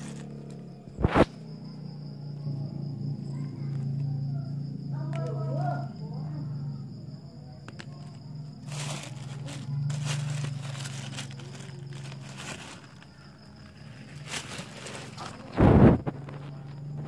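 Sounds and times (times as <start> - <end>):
plastic sack crinkling: 0.0 - 0.5, 8.6 - 16.1
stones handled in a sack: 0.0 - 1.3, 8.0 - 16.2.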